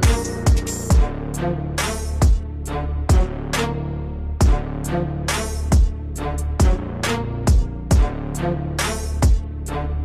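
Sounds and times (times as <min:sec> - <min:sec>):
heavy drum beats: 0:00.0 - 0:01.2
deep bass: 0:00.0 - 0:10.0.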